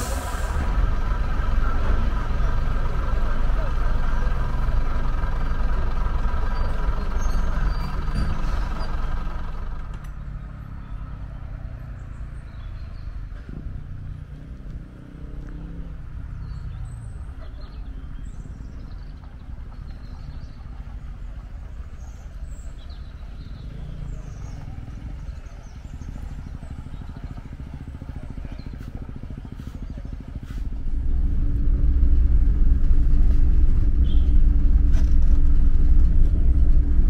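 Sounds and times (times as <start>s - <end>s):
low rumble: 0.0s - 10.0s, 29.9s - 37.0s
diesel railcar engine idling: 0.0s - 14.0s, 16.0s - 37.0s
birds chirping: 5.1s - 13.5s, 15.6s - 30.9s, 34.0s - 34.4s.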